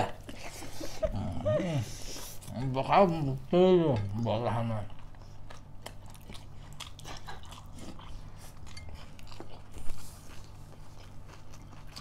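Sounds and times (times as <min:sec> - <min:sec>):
low steady hum: 0:00.0 - 0:12.0
chewing and crunching: 0:04.1 - 0:12.0.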